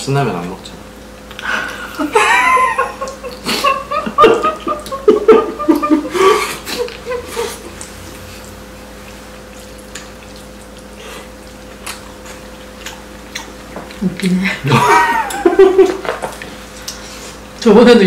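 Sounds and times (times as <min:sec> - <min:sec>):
people laughing: 0:01.5 - 0:07.8, 0:14.4 - 0:16.3.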